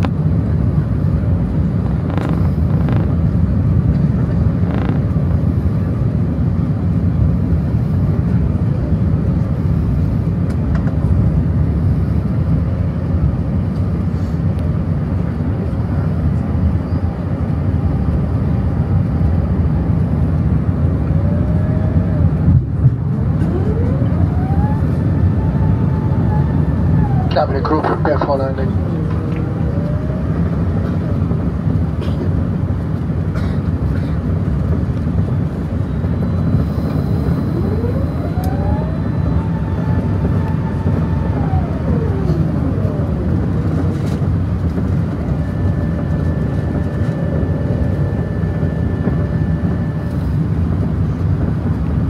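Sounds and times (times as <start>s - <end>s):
aircraft engines and airflow rumble: 0.0s - 52.0s
faint rising whine: 20.9s - 31.9s, 35.4s - 50.4s.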